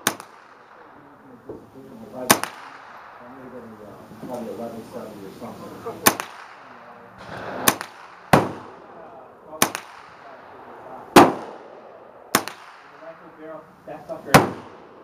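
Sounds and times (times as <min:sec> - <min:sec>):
rifle shots: 0:00.0 - 0:01.4, 0:02.2 - 0:03.8, 0:05.8 - 0:13.5, 0:14.3 - 0:15.0.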